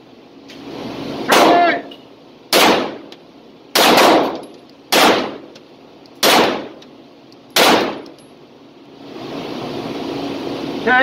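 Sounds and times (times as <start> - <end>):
pistol shots ringing indoors: 2.5 - 3.0, 3.7 - 5.5, 6.2 - 6.8, 7.6 - 8.2.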